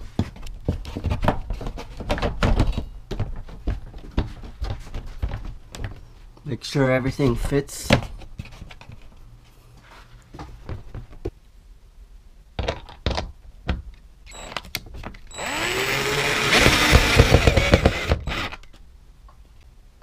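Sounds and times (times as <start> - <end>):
cordless drill whining: 14.3 - 14.6, 15.3 - 18.7.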